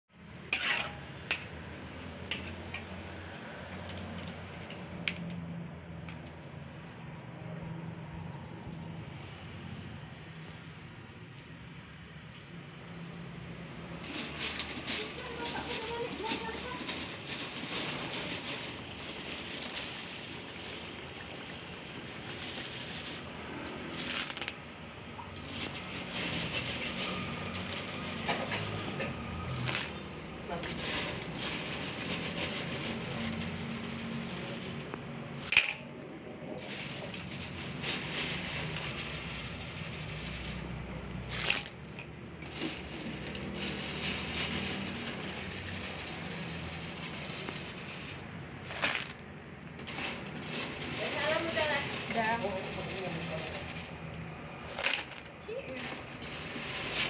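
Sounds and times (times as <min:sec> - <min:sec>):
metal spatula scraping a wok: 0:00.2 - 0:03.8, 0:14.0 - 0:24.6, 0:25.2 - 0:35.8, 0:36.6 - 0:57.0
sauce sizzling and bubbling: 0:18.8 - 0:24.3.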